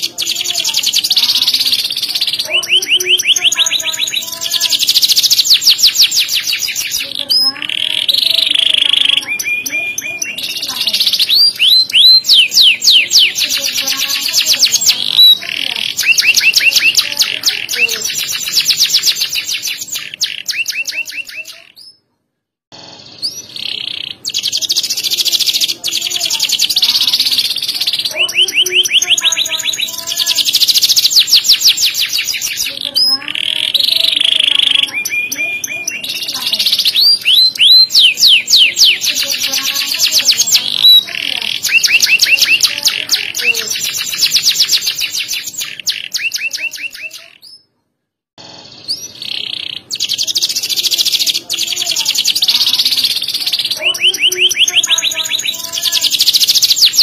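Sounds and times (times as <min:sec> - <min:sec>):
canary singing trills: 0:00.0 - 0:22.1, 0:22.8 - 0:47.8, 0:48.4 - 0:57.0.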